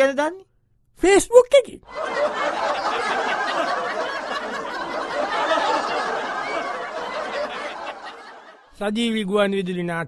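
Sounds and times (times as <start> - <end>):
crowd laughing and chattering: 1.9 - 8.7.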